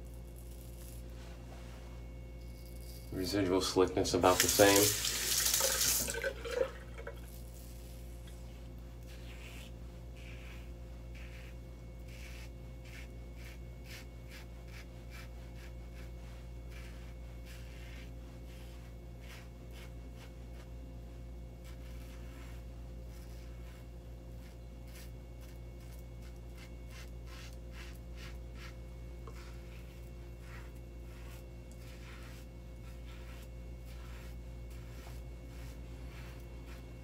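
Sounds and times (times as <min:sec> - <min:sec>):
razor scraping stubble: 0:00.0 - 0:01.2, 0:02.3 - 0:06.1, 0:07.1 - 0:20.8, 0:21.4 - 0:37.0
steady low hum: 0:00.0 - 0:37.0
tap water running: 0:04.1 - 0:07.2.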